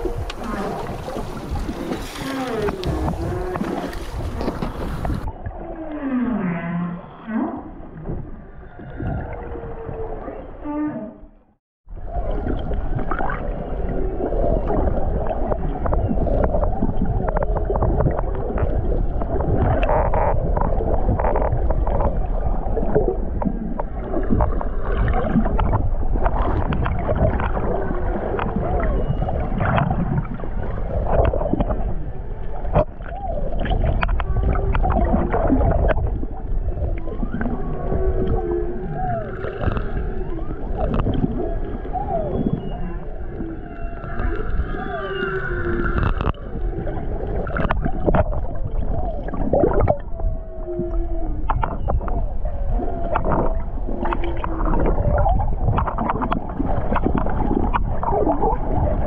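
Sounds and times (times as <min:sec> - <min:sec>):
underwater clicks: 0:00.0 - 0:06.1, 0:32.6 - 0:36.2, 0:36.9 - 0:50.1, 0:51.4 - 0:52.3, 0:53.0 - 0:59.0
whale song underwater: 0:00.0 - 0:59.0.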